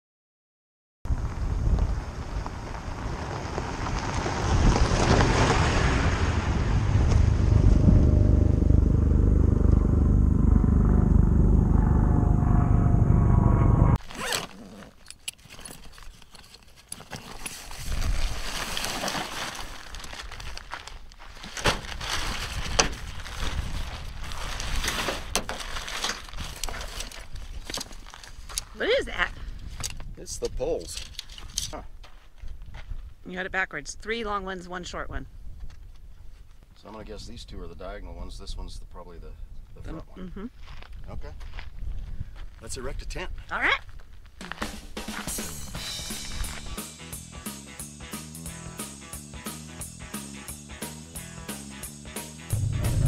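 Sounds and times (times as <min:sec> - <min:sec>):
pickup truck driving over gravel: 0:01.1 - 0:08.2
duffel bag unzipping: 0:14.0 - 0:15.7
tent bag rustling: 0:14.0 - 0:29.0.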